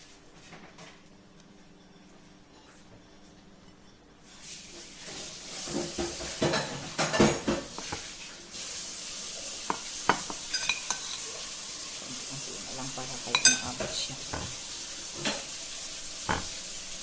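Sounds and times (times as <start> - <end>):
steady hiss: 4.2 - 17.0
utensil clinking on plate: 9.7 - 11.3, 13.2 - 14.6.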